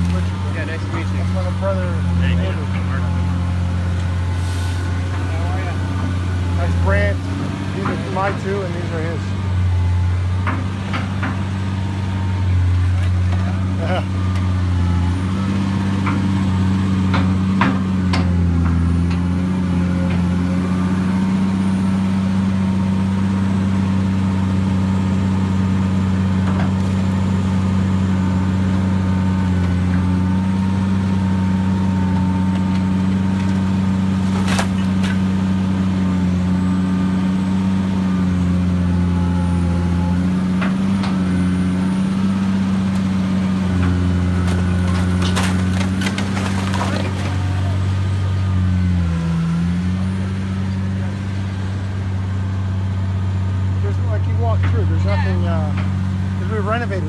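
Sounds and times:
excavator diesel engine drone: 0.0 - 57.0
debris knocks and cracks: 32.5 - 35.3, 43.9 - 47.8.

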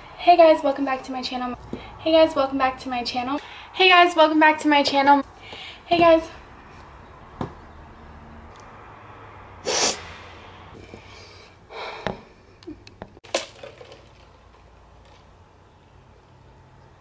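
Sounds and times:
person breathing out: 9.6 - 12.4.

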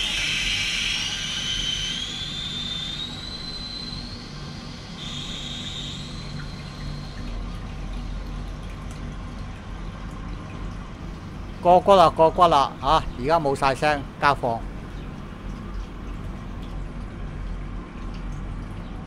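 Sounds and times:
brief high whistle: 0.0 - 7.2
toilet tank refilling with whistle: 0.0 - 19.0.

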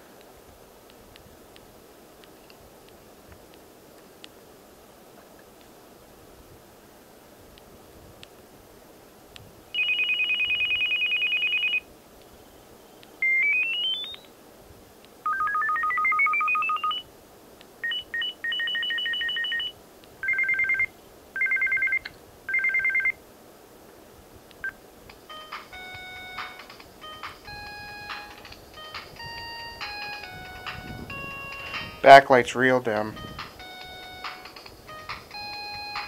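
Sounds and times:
phone ringtones through small speaker: 9.8 - 11.8, 13.2 - 14.3, 15.3 - 17.0, 17.8 - 23.2, 24.6 - 32.2, 33.1 - 36.0.

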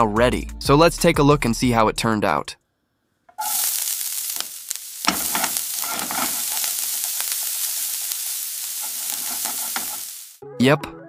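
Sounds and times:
crackles: 3.3 - 10.4
onions sizzling in a frying pan: 3.4 - 10.4.

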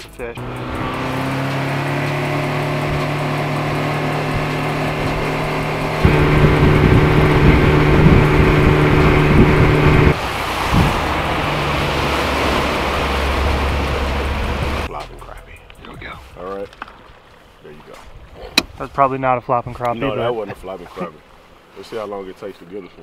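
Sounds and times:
outboard motor running: 0.4 - 14.9
wake rushing: 0.4 - 14.9
wind on microphone: 6.0 - 11.5.

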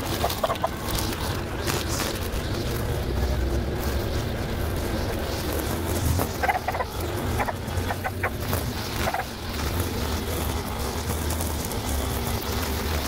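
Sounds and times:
chickens clucking: 0.0 - 3.3, 5.1 - 9.7
steady low hum: 0.0 - 13.0.

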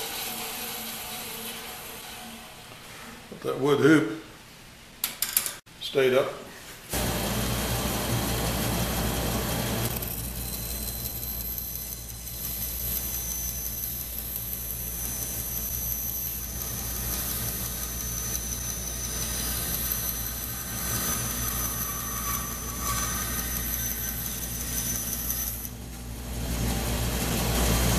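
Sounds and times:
saw cutting wood: 0.0 - 2.5, 7.0 - 25.8
band saw motor humming: 7.0 - 27.9.

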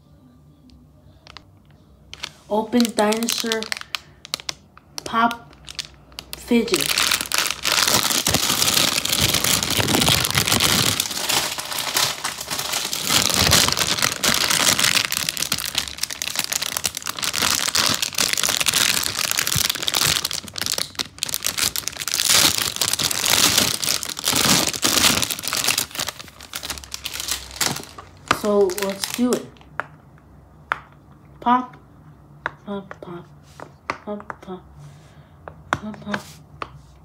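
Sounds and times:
plastic bag crinkling: 2.1 - 29.8.

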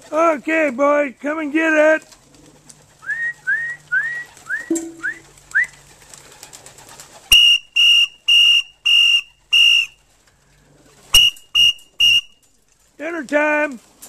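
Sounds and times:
quick rising whistles: 3.0 - 5.8, 11.2 - 12.4
short high whistle blasts: 11.2 - 12.4.

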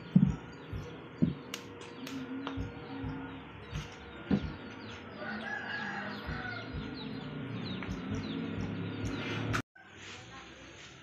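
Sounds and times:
rooster crowing: 5.1 - 7.0.

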